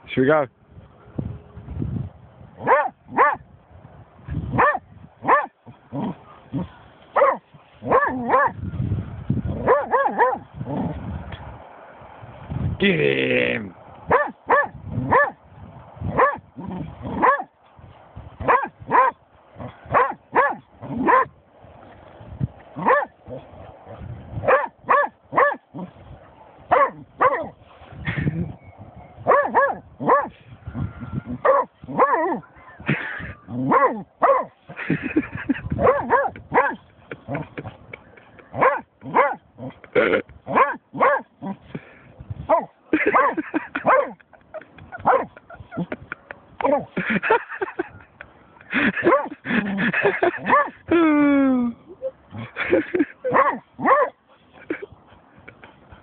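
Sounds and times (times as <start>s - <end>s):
dog barking: 2.6s - 3.4s, 4.6s - 5.5s, 7.2s - 8.6s, 9.6s - 10.4s, 14.1s - 15.4s, 16.2s - 16.4s, 17.2s - 17.5s, 18.4s - 21.3s, 22.8s - 23.4s, 24.4s - 25.6s, 26.7s - 27.5s, 29.3s - 30.3s, 31.4s - 32.8s, 33.7s - 34.5s, 35.8s - 36.8s, 38.6s - 39.4s, 40.5s - 41.3s, 42.5s - 44.2s, 45.0s - 45.3s, 49.0s - 49.4s, 50.4s - 50.8s, 53.3s - 54.2s.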